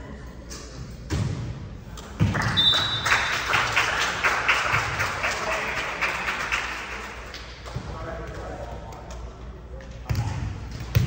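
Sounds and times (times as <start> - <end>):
crowd clapping: 2.3 - 7.6.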